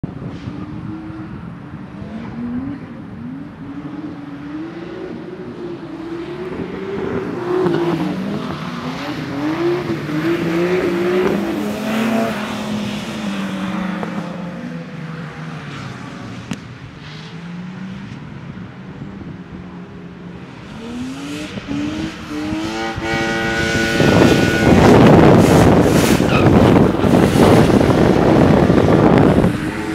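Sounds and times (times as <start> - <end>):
drift car engine revving: 0.5 - 14.4, 20.5 - 29.9.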